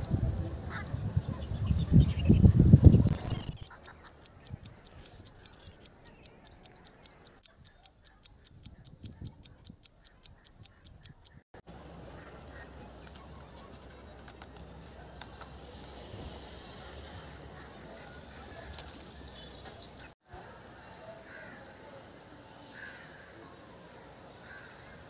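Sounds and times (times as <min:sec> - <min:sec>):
quick even ticking: 0:03.1 - 0:11.5.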